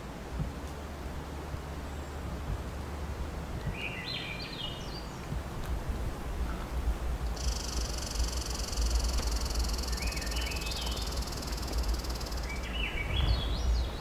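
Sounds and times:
low rumble: 5.9 - 14.0
high-pitched insect buzz or trill: 7.4 - 12.7
bird call of rising notes: 7.4 - 14.0.

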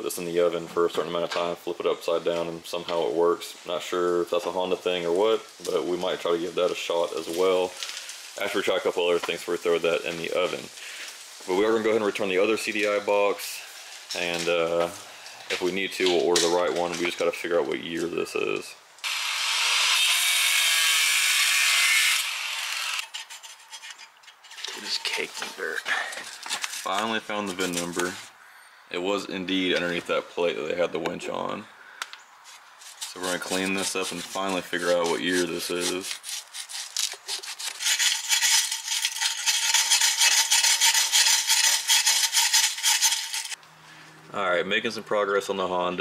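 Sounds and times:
angle grinder grinding steel: 19.0 - 25.6, 32.8 - 43.6.

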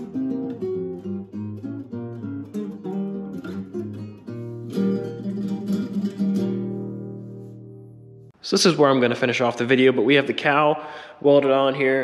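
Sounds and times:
acoustic guitar strumming and picking: 0.0 - 8.4.

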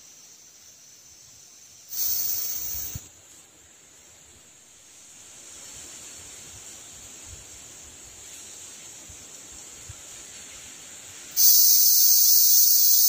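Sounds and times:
high-pitched insect drone: 0.0 - 3.1, 11.4 - 13.0
loud hiss: 0.0 - 13.0.

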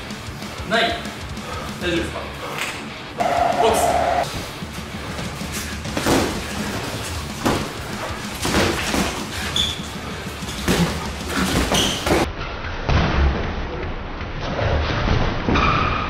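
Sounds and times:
boxing gloves padded thuds: 5.0 - 12.3.

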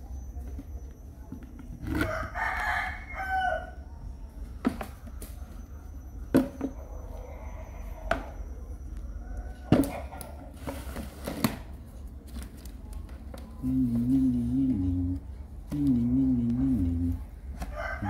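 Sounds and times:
rooster crowing: 1.9 - 3.8, 17.6 - 18.0.

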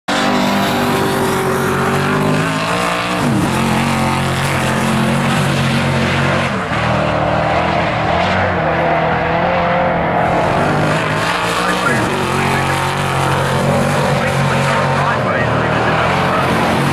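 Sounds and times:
race car engine running hard: 0.1 - 16.9.

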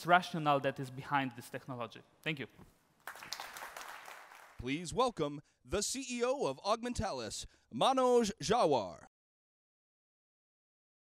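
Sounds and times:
man's voice: 4.6 - 9.1.

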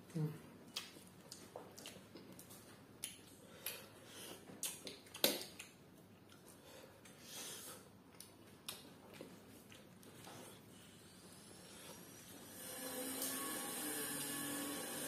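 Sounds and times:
chewing and lip smacks: 0.7 - 7.2, 8.1 - 10.8.

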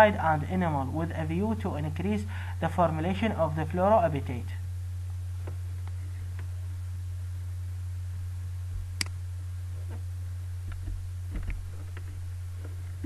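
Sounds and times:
low electrical hum: 0.0 - 13.0
sharp click: 9.0 - 9.2.

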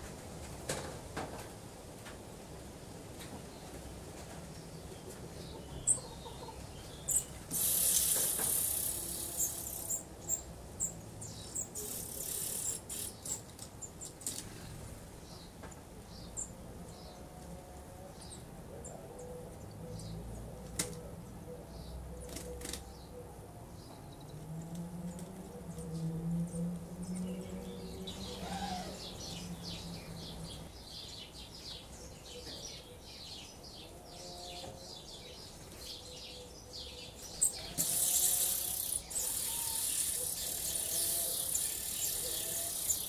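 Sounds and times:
nestlings peeping: 5.4 - 14.1, 36.9 - 43.0.

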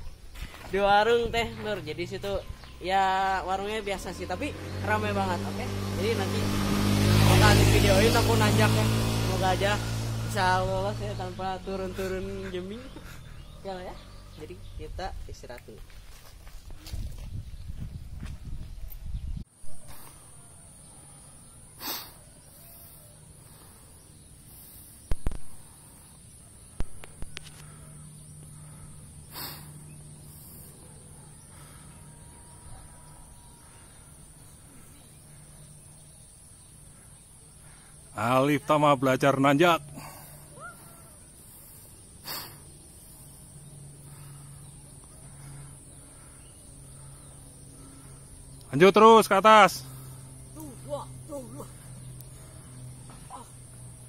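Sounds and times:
insects droning: 0.0 - 18.4, 19.5 - 54.0
faint bird calls: 19.6 - 38.2, 39.9 - 48.8.

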